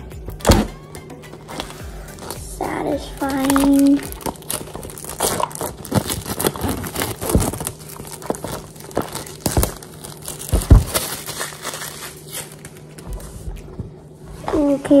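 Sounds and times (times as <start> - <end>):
plastic shrink-wrap crinkling: 1.5 - 13.9.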